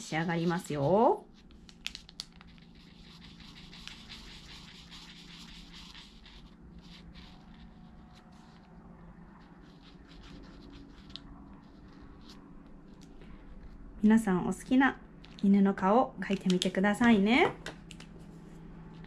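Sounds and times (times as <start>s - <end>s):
marker pen scratching paper: 0.4s - 13.8s.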